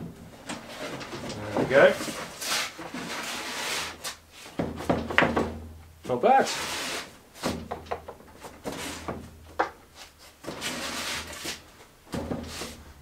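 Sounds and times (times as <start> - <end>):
wood sliding and rubbing: 0.0 - 5.6, 6.4 - 13.0
light wooden knocks: 7.4 - 9.9.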